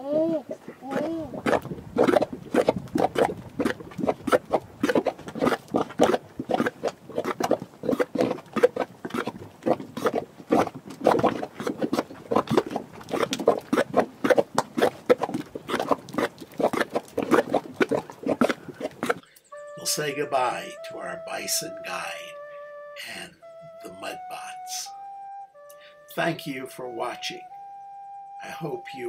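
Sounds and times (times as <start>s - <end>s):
mud pots bubbling: 0.0s - 21.6s.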